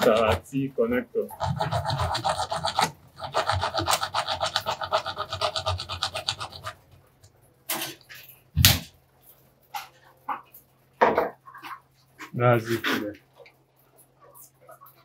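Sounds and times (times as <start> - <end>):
saw cutting plastic pipe: 0.0 - 0.5, 1.2 - 6.8.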